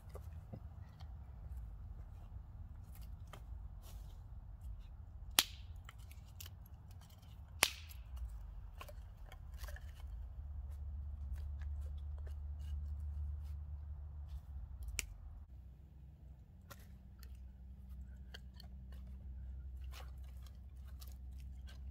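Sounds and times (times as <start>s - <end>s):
kindling sticks clicking and clacking: 4.4s - 15.5s, 16.6s - 21.9s
sharp cracks: 5.3s - 6.0s, 7.5s - 8.4s.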